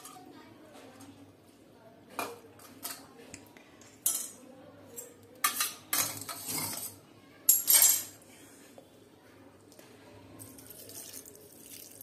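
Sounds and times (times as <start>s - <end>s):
metal spoon scraping cookware: 5.0s - 8.2s.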